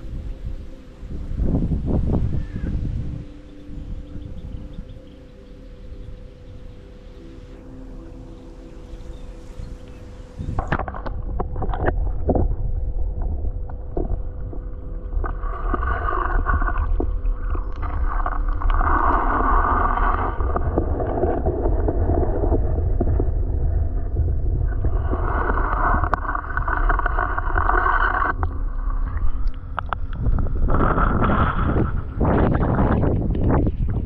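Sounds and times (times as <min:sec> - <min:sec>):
muffled underwater rushing water: 0:00.0 - 0:34.0
heavy low rumble: 0:07.7 - 0:34.0.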